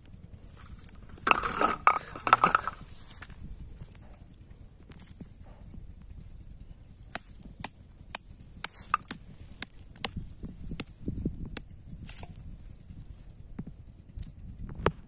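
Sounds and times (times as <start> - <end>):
stick striking snail shells: 7.1 - 10.9.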